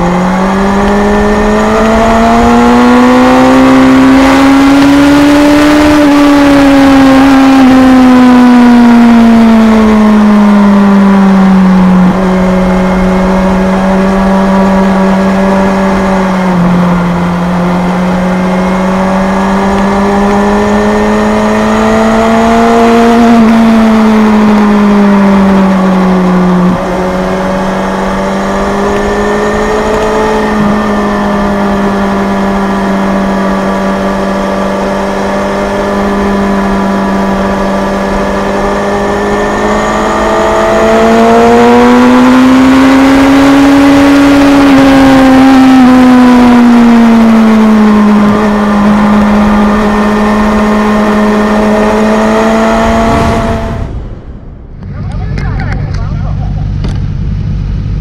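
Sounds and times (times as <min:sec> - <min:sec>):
motorcycle engine revving: 0:00.0 - 0:58.0
wind rush: 0:51.2 - 0:58.0.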